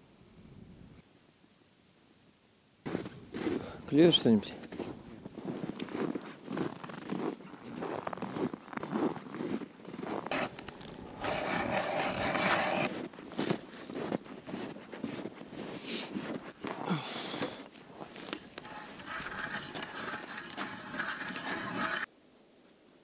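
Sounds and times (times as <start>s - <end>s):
ice auger grinding and scraping: 9.9s - 13.1s, 17.9s - 22.1s.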